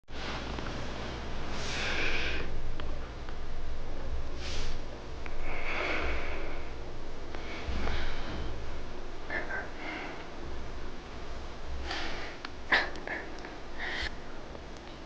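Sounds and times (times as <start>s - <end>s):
kitten breathy sounds: 11.8s - 14.2s.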